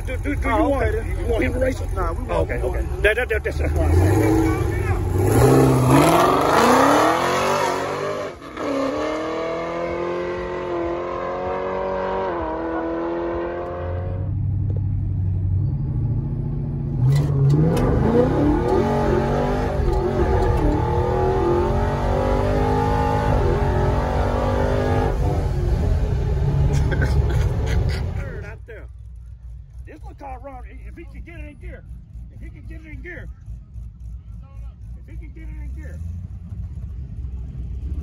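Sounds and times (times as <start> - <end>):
car engine accelerating: 0.0 - 38.0
car engine revving from inside cabin: 17.0 - 26.8.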